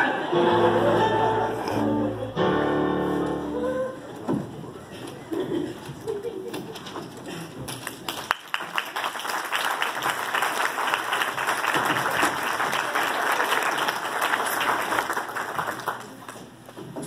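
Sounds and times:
audience applauding: 0:07.6 - 0:16.6.

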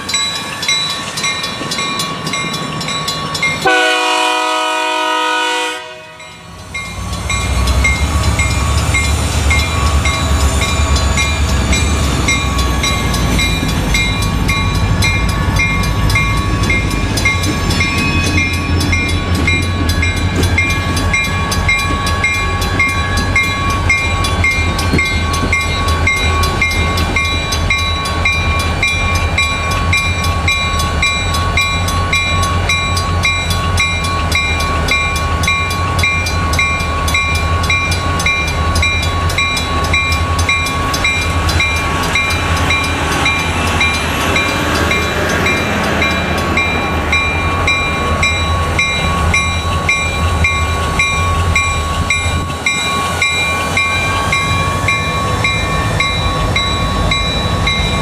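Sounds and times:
crossing bell ringing: 0:00.0 - 0:58.0
train horn blast: 0:03.6 - 0:06.4.

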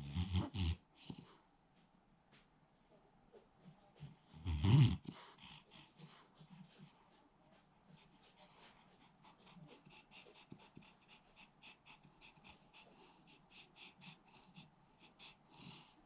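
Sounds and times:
dog breathing quickly: 0:07.9 - 0:16.0.

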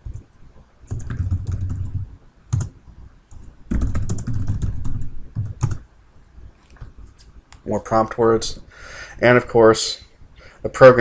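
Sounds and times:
computer keyboard typing: 0:00.9 - 0:05.8.

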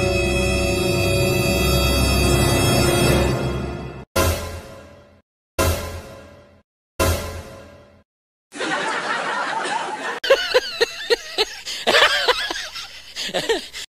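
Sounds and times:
person laughing: 0:08.6 - 0:13.9.

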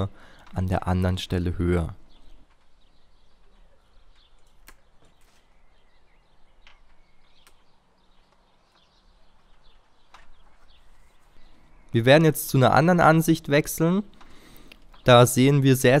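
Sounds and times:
faint birdsong: 0:00.0 - 0:16.0
pruning shears snipping twigs: 0:03.4 - 0:05.5.

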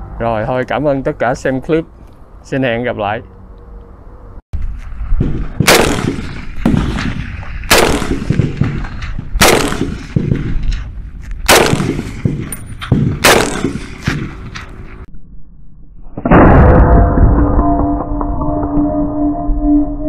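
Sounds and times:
rifle shots echoing: 0:05.2 - 0:10.7, 0:11.5 - 0:14.6.

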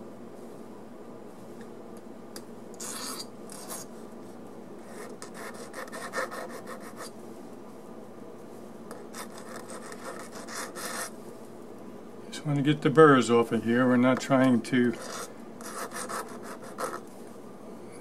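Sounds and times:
hand file scraping metal: 0:14.9 - 0:17.0.

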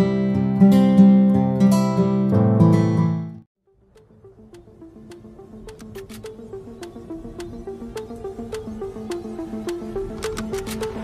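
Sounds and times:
strummed acoustic guitar music: 0:00.0 - 0:03.4
quiet music track: 0:03.6 - 0:11.0.

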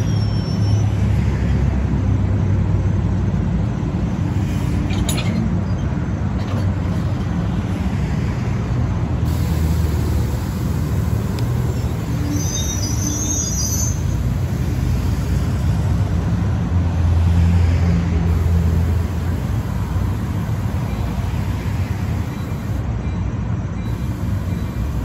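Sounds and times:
diesel locomotive engine drone: 0:00.0 - 0:25.0
high-pitched squeal: 0:11.6 - 0:15.1.

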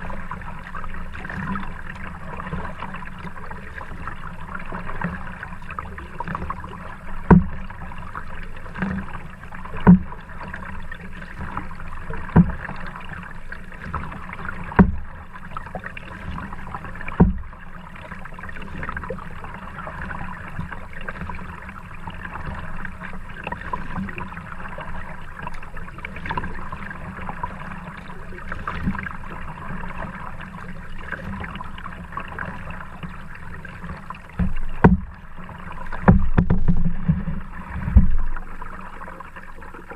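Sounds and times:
kayak paddle thumps: 0:07.2 - 0:07.7, 0:09.7 - 0:10.2, 0:12.2 - 0:12.8, 0:14.6 - 0:15.1, 0:17.0 - 0:17.6, 0:34.3 - 0:38.5.

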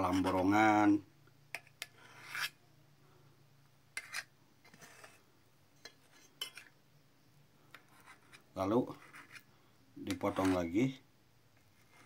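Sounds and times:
knife scraping an enamel plate: 0:00.0 - 0:00.6, 0:01.5 - 0:02.6, 0:04.0 - 0:06.8, 0:07.7 - 0:10.8.

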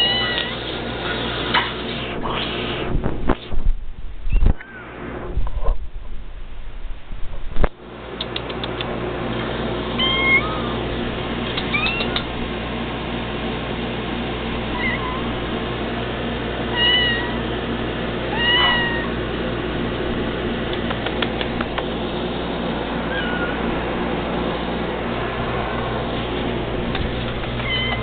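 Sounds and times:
cats meowing: 0:00.0 - 0:00.7, 0:10.0 - 0:10.8, 0:11.6 - 0:12.3, 0:14.7 - 0:15.4, 0:16.7 - 0:17.5, 0:18.3 - 0:19.2, 0:23.0 - 0:23.8, 0:27.5 - 0:28.0
steady low hum: 0:00.0 - 0:28.0.

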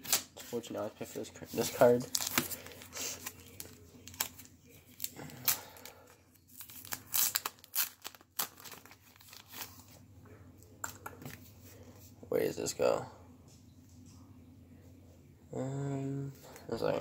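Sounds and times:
plastic packaging crinkling and tearing: 0:01.6 - 0:10.0.

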